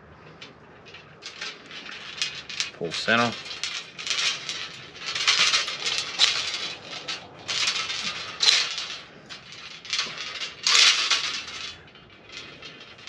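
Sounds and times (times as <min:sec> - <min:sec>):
metallic grinding and creaking: 0:00.0 - 0:13.0.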